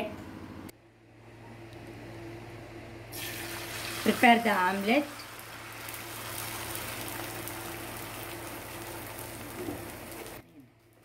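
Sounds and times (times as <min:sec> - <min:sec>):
omelet sizzling in a pan: 0:03.1 - 0:10.4.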